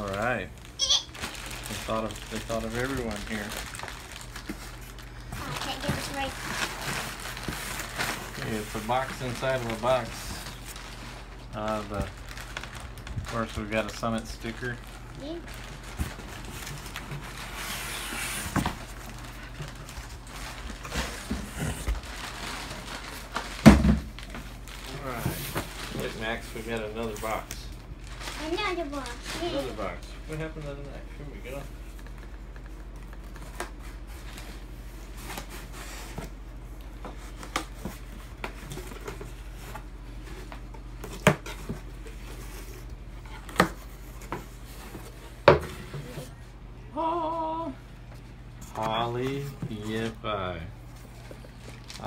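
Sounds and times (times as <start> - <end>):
cardboard boxes rustling and scraping: 15.3 - 23.8.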